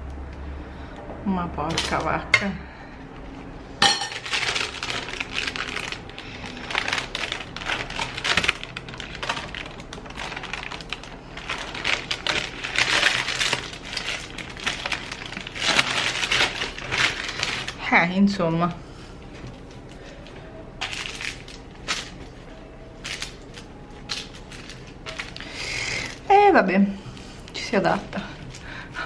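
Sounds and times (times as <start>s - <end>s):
crinkling and crackling clicks: 4.1s - 17.9s, 23.0s - 26.3s.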